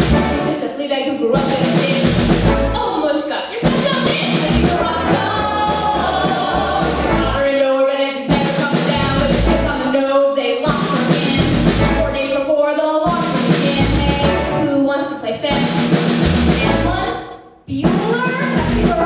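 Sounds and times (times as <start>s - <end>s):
instrumental backing with bass: 0.0s - 0.6s, 1.4s - 2.9s, 3.6s - 7.6s, 8.3s - 10.0s, 10.7s - 12.4s, 13.1s - 14.8s, 15.5s - 19.0s
singers performing: 1.3s - 12.2s.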